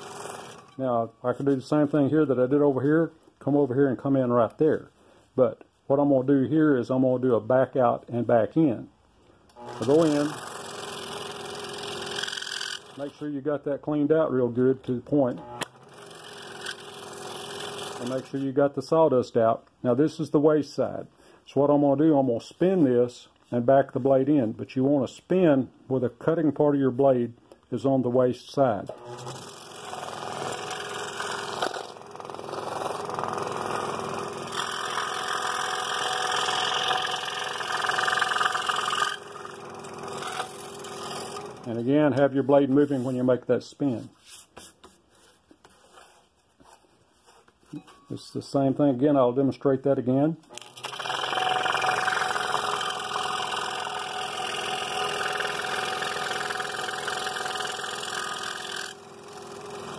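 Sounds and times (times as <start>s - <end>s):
scroll saw cutting wood: 0.0s - 0.8s, 9.5s - 13.3s, 15.2s - 18.4s, 28.9s - 44.8s, 50.5s - 59.9s.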